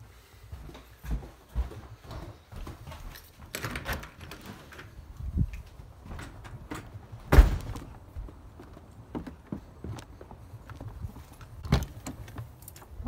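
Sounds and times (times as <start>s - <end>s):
footsteps: 0.0s - 3.5s, 4.4s - 13.0s
front door opening and shutting: 3.0s - 8.1s, 11.5s - 13.0s
loud thump: 7.3s - 7.9s.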